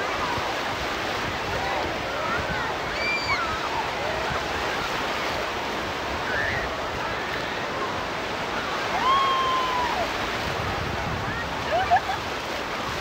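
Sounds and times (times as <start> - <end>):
ocean surf on a beach: 0.0 - 13.0.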